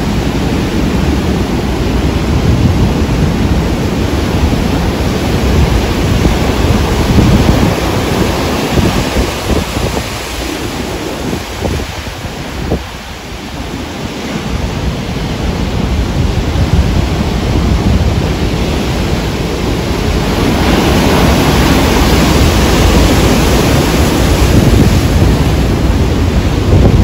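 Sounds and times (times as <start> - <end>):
heavy surf breaking: 0.0 - 27.0
wind buffeting microphone: 0.0 - 27.0.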